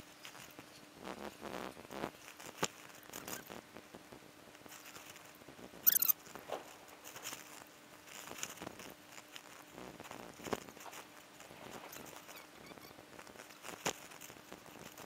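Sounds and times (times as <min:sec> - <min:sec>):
shrill chirp: 0:05.9 - 0:06.2.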